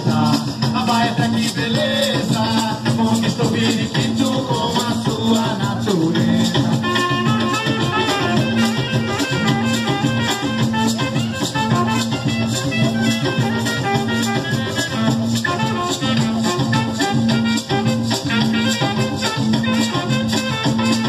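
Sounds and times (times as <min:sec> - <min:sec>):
drums beating: 0:00.0 - 0:21.0
maracas shaking: 0:00.0 - 0:21.0
guitars playing: 0:07.1 - 0:21.0.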